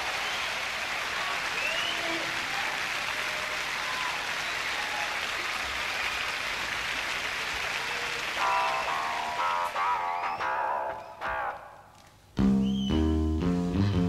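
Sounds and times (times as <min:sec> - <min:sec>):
audience applauding: 0:00.0 - 0:11.4
short rising whistle: 0:12.6 - 0:13.1.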